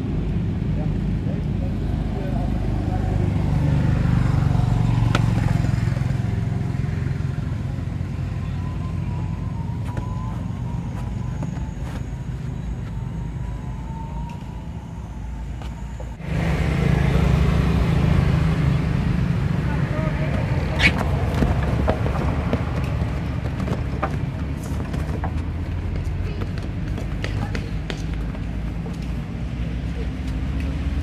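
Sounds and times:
motorcycle engine rumbling: 0:00.0 - 0:31.0.

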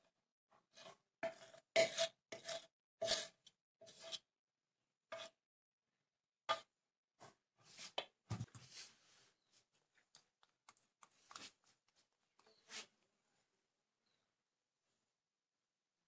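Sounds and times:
spoon scraping mixing bowl: 0:00.8 - 0:04.2.

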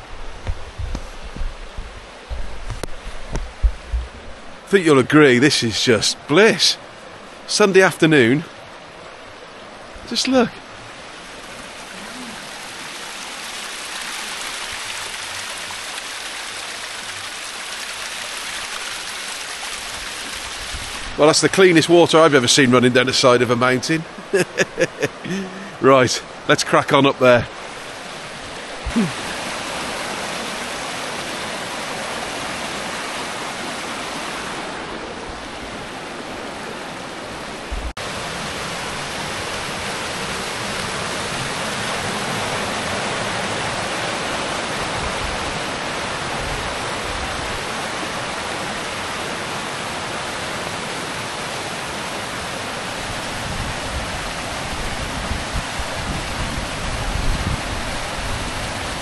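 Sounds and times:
mountain stream rushing over boulders: 0:00.0 - 0:59.0.

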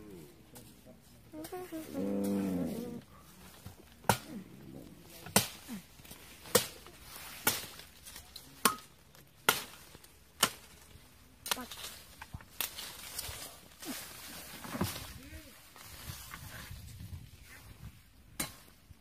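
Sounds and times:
sharp chopping strikes: 0:04.0 - 0:04.3, 0:05.3 - 0:05.7.

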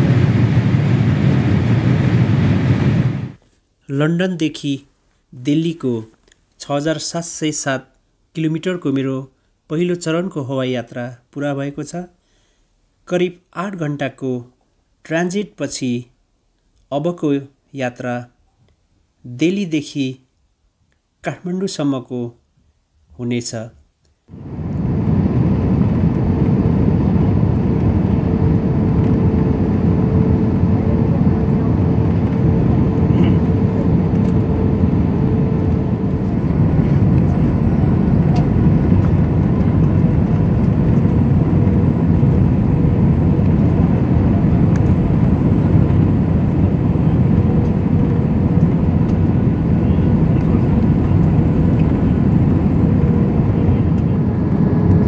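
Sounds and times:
airliner cabin noise: 0:00.0 - 0:03.4, 0:24.3 - 0:55.0
faint steady hum: 0:00.0 - 0:55.0.

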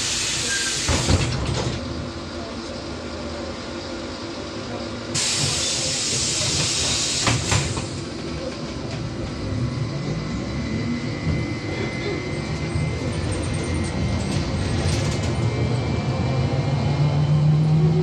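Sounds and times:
air hiss of pneumatic doors: 0:00.0 - 0:01.4, 0:05.1 - 0:08.1
trolleybus humming: 0:00.0 - 0:18.0.

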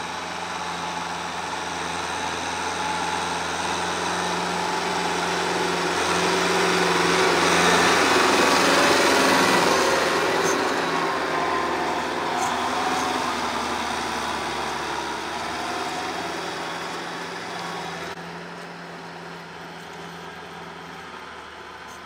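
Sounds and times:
rotary tiller in soil: 0:00.0 - 0:22.0
tractor diesel engine running: 0:00.0 - 0:22.0.

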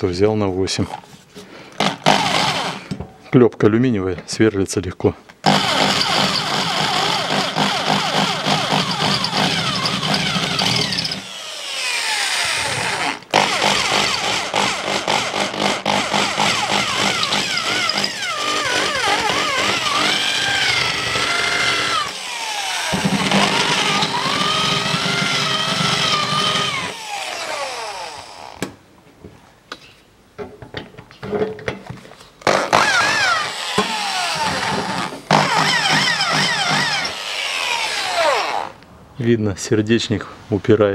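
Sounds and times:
electric drill whining: 0:01.8 - 0:02.9, 0:05.5 - 0:28.7, 0:32.7 - 0:38.8.

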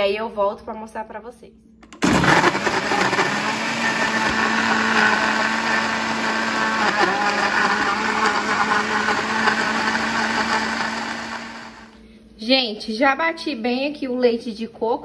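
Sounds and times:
blender running: 0:02.0 - 0:12.0.

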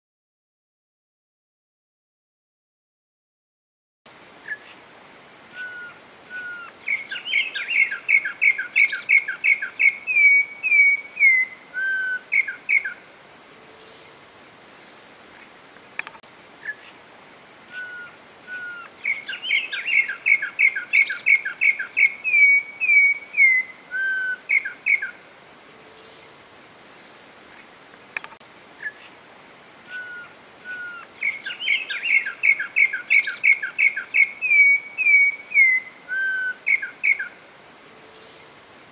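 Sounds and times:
bird whistled song: 0:05.5 - 0:13.0, 0:17.7 - 0:25.2, 0:29.8 - 0:37.4.

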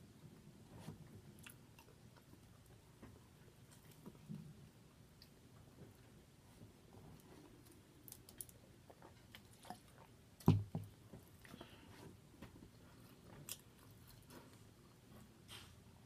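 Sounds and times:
person chewing with wet smacks: 0:01.3 - 0:04.5, 0:07.2 - 0:15.0.

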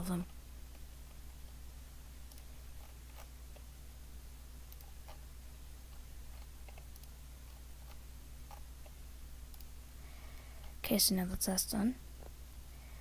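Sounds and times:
steady low hum: 0:00.0 - 0:13.0
computer mouse clicks: 0:02.2 - 0:03.7, 0:04.7 - 0:05.2, 0:05.9 - 0:09.8.

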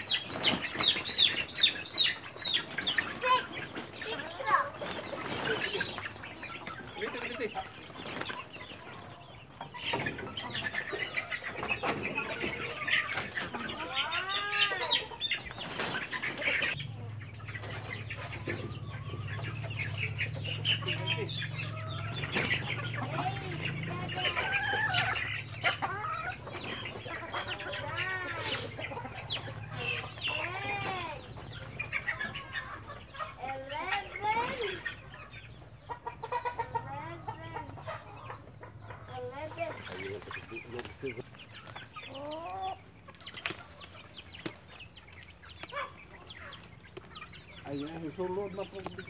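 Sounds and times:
chicks clucking and peeping: 0:00.0 - 0:49.0.

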